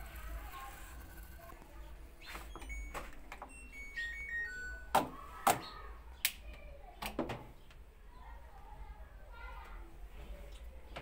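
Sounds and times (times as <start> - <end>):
electronic beep tones: 2.2 - 5.0.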